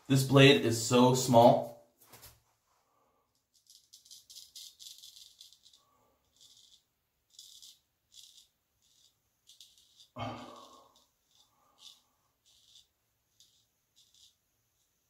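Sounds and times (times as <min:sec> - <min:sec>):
razor scraping stubble: 0:03.6 - 0:15.0.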